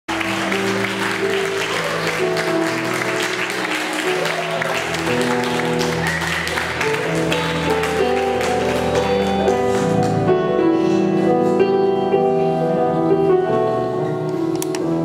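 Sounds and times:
audience applause: 0.1s - 10.2s
piano: 0.1s - 15.0s.

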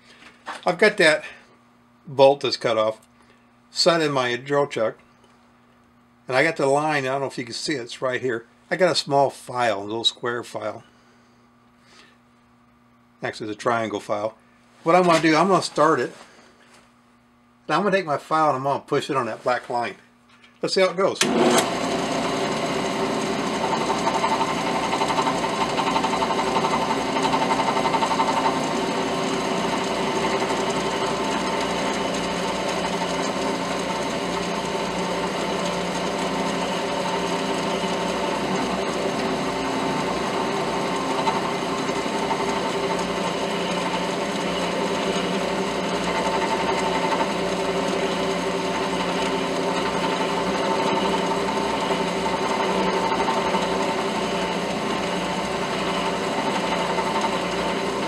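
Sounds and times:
drill press running: 20.5s - 58.0s.

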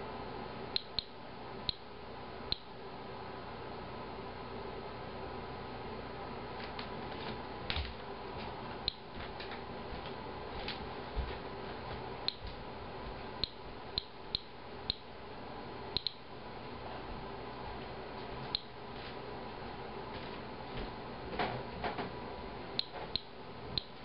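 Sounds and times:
faint steady hum: 0.0s - 24.0s
geiger counter clicking: 0.8s - 1.8s, 13.4s - 15.0s, 16.0s - 16.2s, 22.8s - 24.0s.

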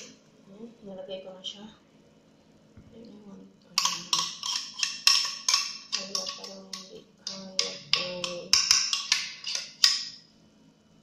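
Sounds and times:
utensil tapping hard container: 3.8s - 10.2s.

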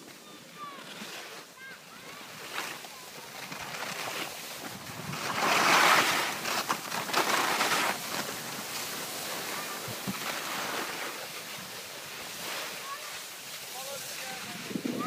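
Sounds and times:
skis scraping over packed snow: 0.0s - 15.0s
wind noise on microphone: 4.6s - 5.8s, 14.3s - 15.0s.

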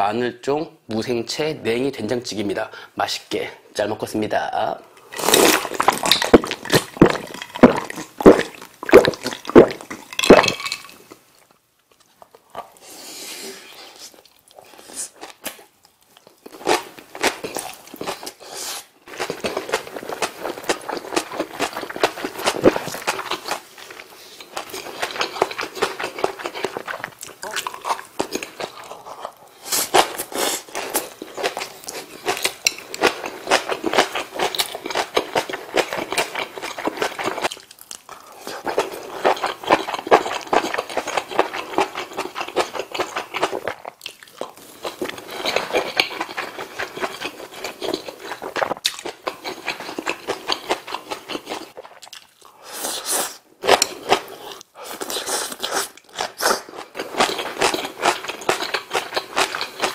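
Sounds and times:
wet chewing crunches: 5.2s - 11.1s, 19.1s - 52.6s, 53.6s - 59.9s.

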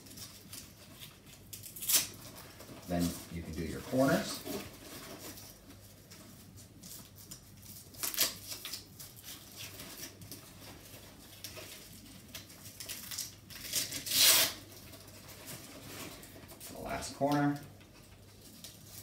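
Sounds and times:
velcro straps ripping: 0.0s - 2.3s, 6.8s - 10.2s, 12.7s - 14.7s.

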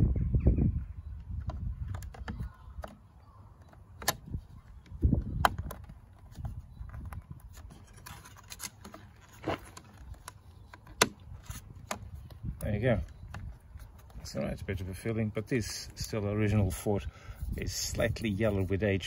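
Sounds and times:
hard plastic clicking: 1.2s - 14.2s
light plastic scraping: 1.3s - 14.4s.

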